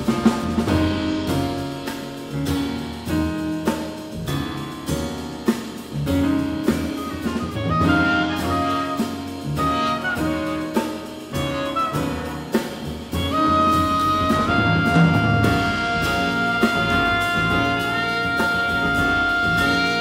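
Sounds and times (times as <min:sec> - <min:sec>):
drum kit with cymbals: 0:00.0 - 0:20.0
piano: 0:00.0 - 0:20.0
upright bass: 0:00.0 - 0:20.0
trumpet melody: 0:06.6 - 0:20.0.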